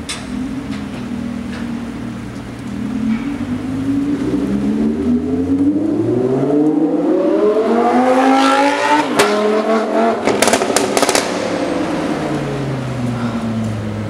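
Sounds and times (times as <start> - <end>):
sports car engine accelerating: 0.3 - 14.0
exhaust crackles and pops: 9.0 - 13.8.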